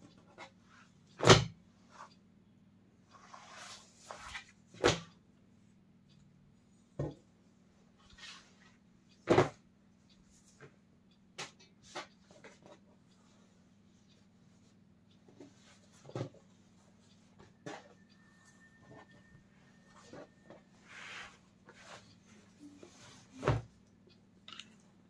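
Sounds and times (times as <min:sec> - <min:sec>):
faint hum: 0:16.5 - 0:25.0.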